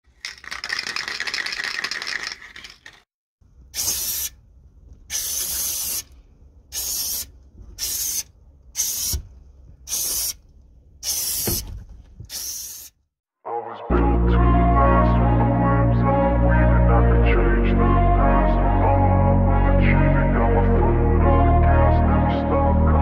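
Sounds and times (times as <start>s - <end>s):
spray can mixing ball rattling: 0.1s - 3.1s, 3.8s - 4.3s, 5.1s - 6.1s, 6.7s - 8.2s, 8.8s - 9.2s, 9.9s - 10.4s, 11.0s - 12.9s
spray paint hissing: 3.7s - 4.4s, 5.1s - 9.3s, 9.9s - 10.4s, 11.0s - 11.7s, 12.3s - 13.0s.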